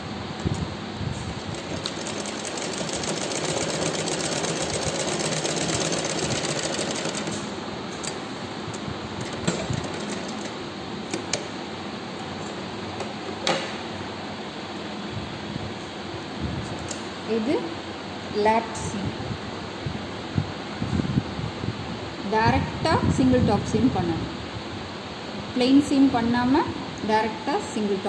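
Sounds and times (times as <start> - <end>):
sewing machine stitching: 1.6 - 7.5.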